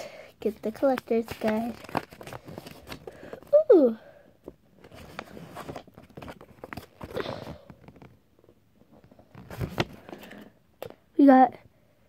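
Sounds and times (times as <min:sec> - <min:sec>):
paper rustling and crinkling: 0:00.5 - 0:03.6, 0:04.8 - 0:08.2, 0:09.0 - 0:10.4.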